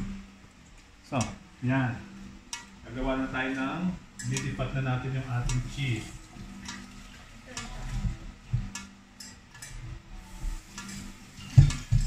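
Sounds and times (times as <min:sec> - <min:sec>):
utensils and dishes clicking: 0:02.5 - 0:02.8, 0:04.1 - 0:04.6, 0:05.4 - 0:09.9, 0:10.6 - 0:12.0.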